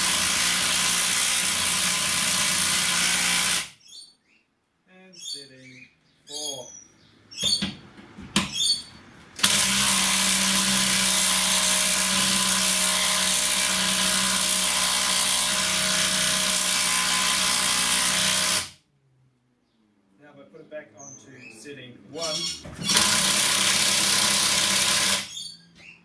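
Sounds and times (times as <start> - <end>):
impact driver hammering: 9.4 - 18.7, 22.8 - 25.3.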